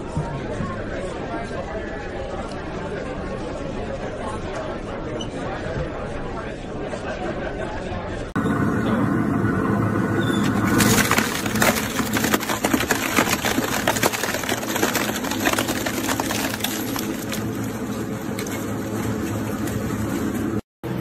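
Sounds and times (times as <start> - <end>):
steady motor hum: 8.4 - 21.0
shredder crunching plastic tube: 10.4 - 20.6.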